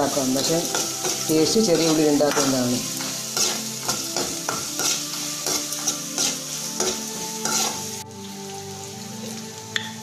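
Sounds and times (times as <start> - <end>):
shallots sizzling in hot oil: 0.0 - 10.0
metal ladle scraping pan: 0.6 - 8.0.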